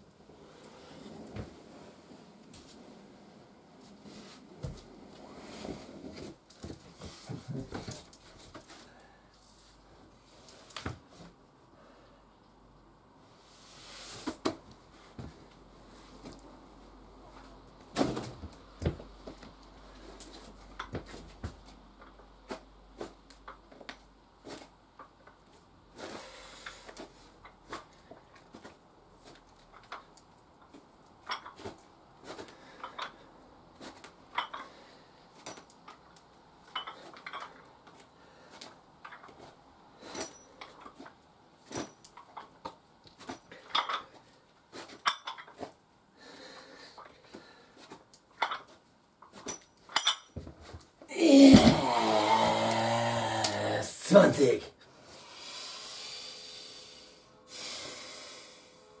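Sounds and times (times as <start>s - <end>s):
dumbbells clinking: 32.7s - 33.3s, 34.3s - 34.8s, 35.4s - 37.7s, 43.5s - 44.2s, 45.0s - 45.6s, 49.3s - 50.4s.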